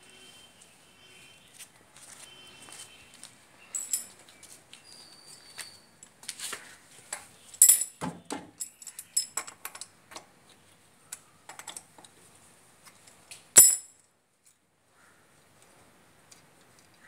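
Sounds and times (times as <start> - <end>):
metallic clinks of wheel nuts: 3.7 - 4.3, 7.6 - 10.0, 12.9 - 14.0.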